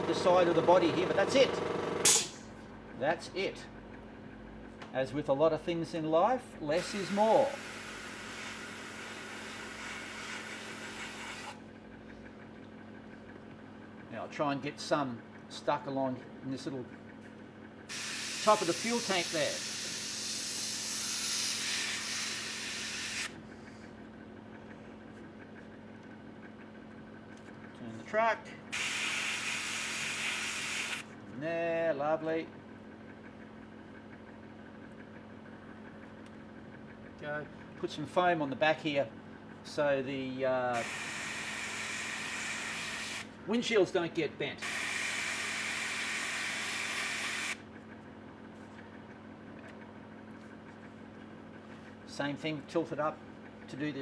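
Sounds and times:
airbrush hissing: 17.9s - 23.3s.

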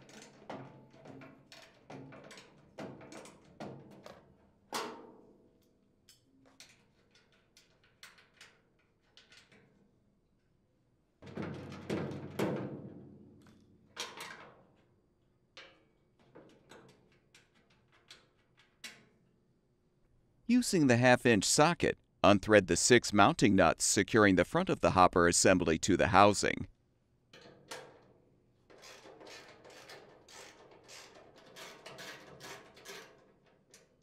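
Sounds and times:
wrench clicks and knocks on metal: 15.6s - 19.1s.

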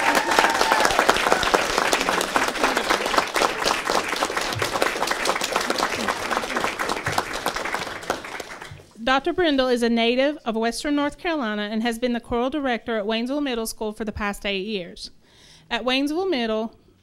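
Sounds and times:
crowd applauding: 0.0s - 8.9s.

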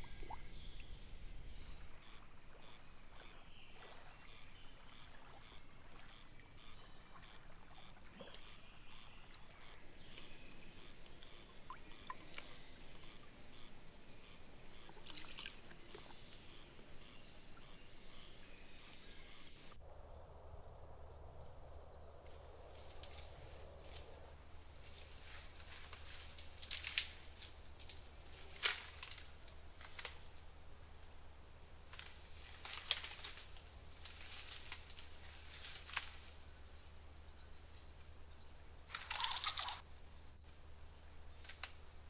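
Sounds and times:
insects chirping: 0.0s - 19.9s, 22.0s - 42.0s
water sounds: 14.6s - 16.6s.

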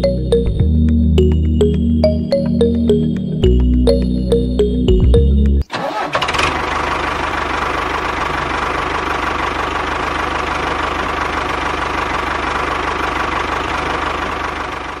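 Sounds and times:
tractor engine idling: 5.7s - 15.0s.

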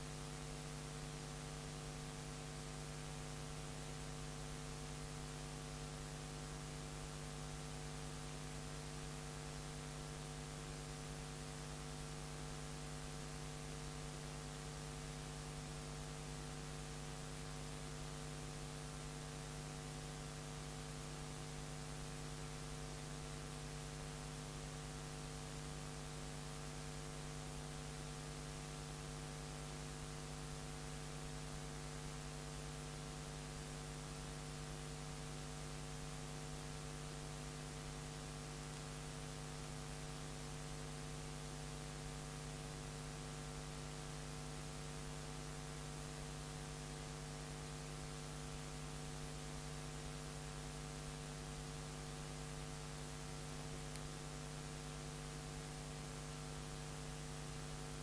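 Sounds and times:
electrical mains hum: 0.0s - 58.0s.

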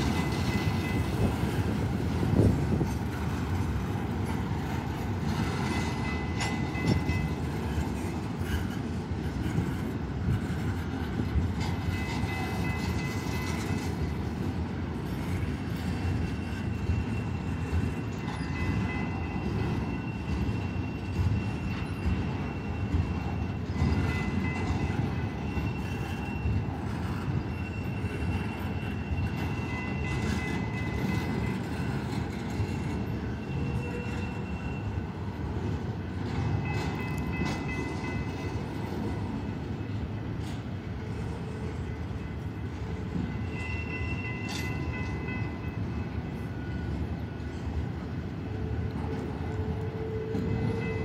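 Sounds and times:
freight train wheels rumbling: 0.0s - 51.0s
train cars clanking: 0.0s - 51.0s
high wheel squeals: 15.1s - 35.4s, 36.4s - 47.6s, 48.6s - 51.0s.

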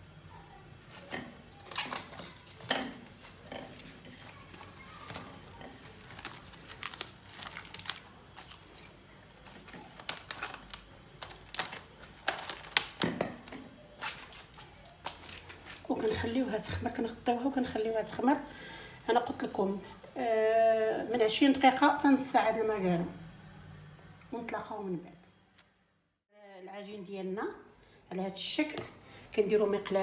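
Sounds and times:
cling film crinkling: 0.8s - 16.0s.

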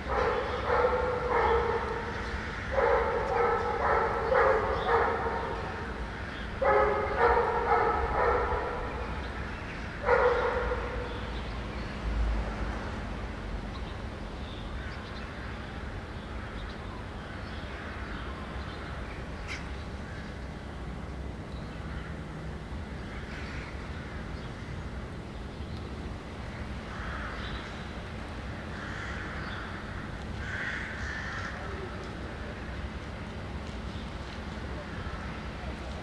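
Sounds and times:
dog barking: 0.1s - 2.0s, 2.7s - 5.8s, 6.6s - 9.0s, 10.0s - 11.1s.

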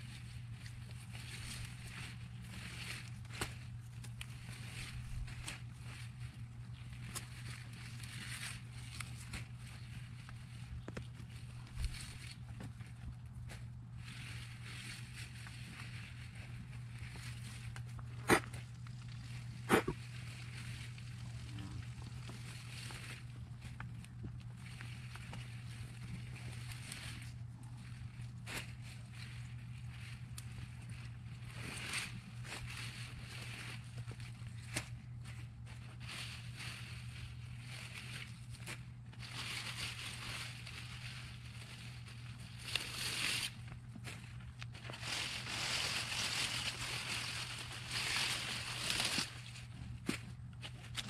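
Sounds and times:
leaves rustling and scraping: 0.0s - 51.0s
steady low hum: 0.0s - 51.0s.

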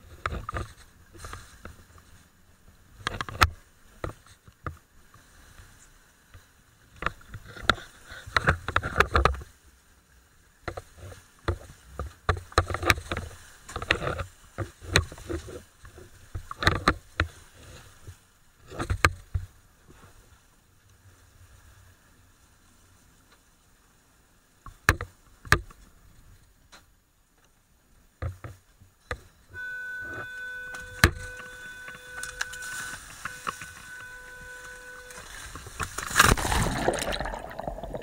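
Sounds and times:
wind and water rushing: 35.1s - 38.0s.

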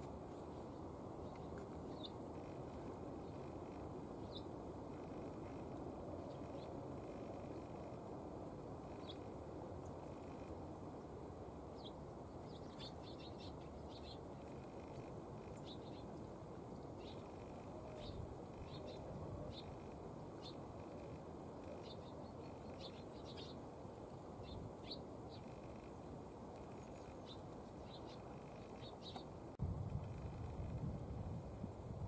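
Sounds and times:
sparrows chirping: 1.2s - 2.6s, 4.2s - 5.6s, 8.9s - 10.4s, 11.8s - 23.7s, 24.3s - 29.4s.

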